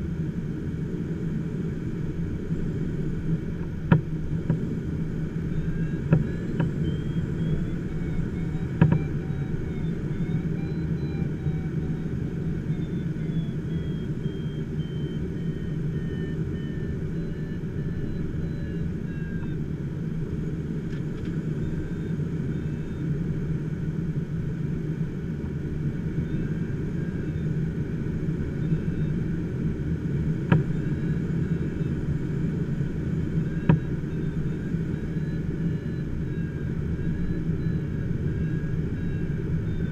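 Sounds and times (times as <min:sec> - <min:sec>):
airflow rushing around cockpit: 0:00.0 - 0:39.9
faint falling whistling tone: 0:05.4 - 0:19.6, 0:33.4 - 0:39.9.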